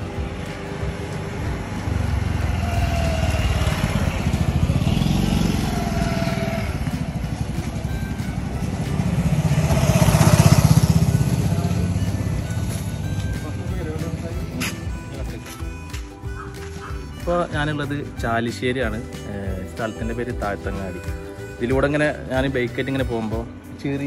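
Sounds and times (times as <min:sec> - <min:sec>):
motor scooter engine running: 0:00.0 - 0:14.5, 0:16.2 - 0:17.3.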